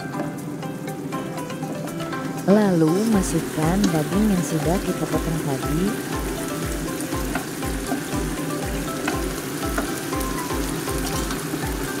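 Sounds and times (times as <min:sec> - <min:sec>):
background music with steady beat: 0:00.0 - 0:12.0
meat sizzling in a frying pan: 0:00.0 - 0:12.0.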